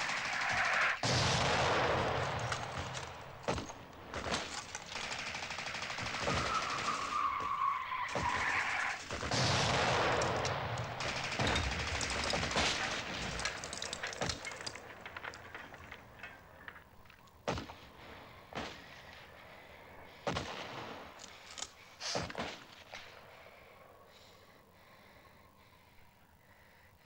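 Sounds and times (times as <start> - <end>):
machine gun rapid fire: 0.0 - 3.2, 4.2 - 7.1, 9.0 - 14.4
single gunshots: 1.0 - 4.5, 9.1 - 14.7.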